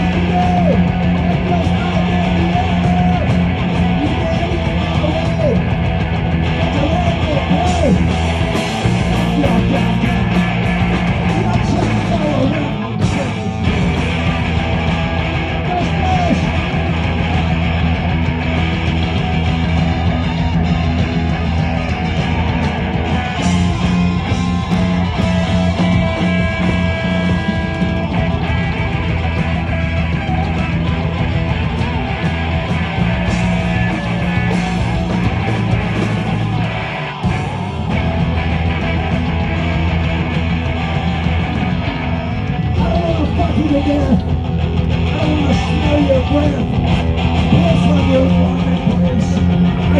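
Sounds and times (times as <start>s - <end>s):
distorted electric guitar: 0.0s - 49.9s
punk rock band playing: 0.0s - 49.9s.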